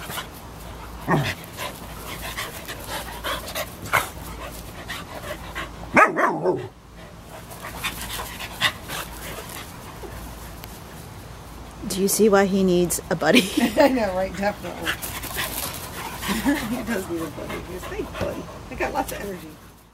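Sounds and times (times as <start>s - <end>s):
dogs panting and scuffling: 0.0s - 12.0s, 13.6s - 19.9s
dog barking: 5.9s - 6.7s.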